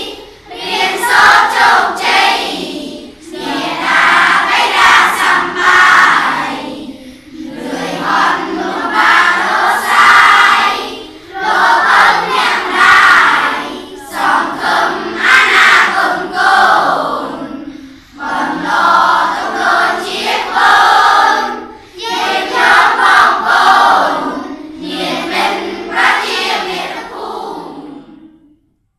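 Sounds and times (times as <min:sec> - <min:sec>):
children chanting in unison: 0:00.0 - 0:28.6.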